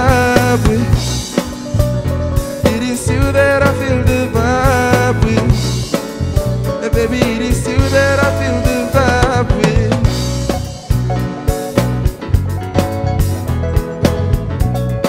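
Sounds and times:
man singing into a microphone: 0.0s - 1.6s, 2.5s - 10.6s
bass guitar: 0.0s - 15.0s
drum kit: 0.0s - 15.0s
electric guitar: 0.0s - 15.0s
keyboard: 0.0s - 15.0s.

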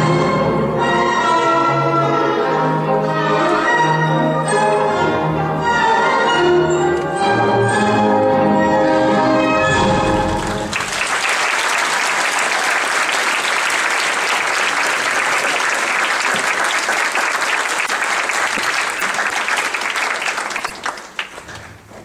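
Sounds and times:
audience applauding: 10.3s - 21.7s.

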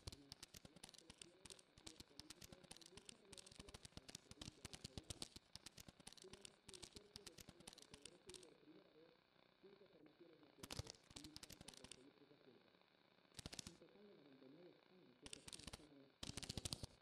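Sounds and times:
rapid irregular clicking: 0.0s - 8.6s, 10.6s - 12.2s, 13.3s - 13.8s, 15.2s - 17.0s.

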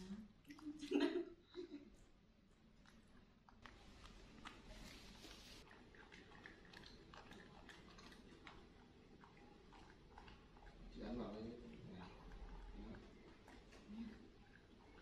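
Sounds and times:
faint rustling: 3.8s - 5.6s.

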